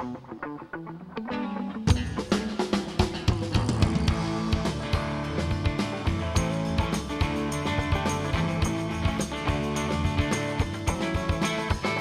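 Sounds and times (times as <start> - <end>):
electric guitar: 0.0 - 12.0
drum kit beat: 1.8 - 12.0.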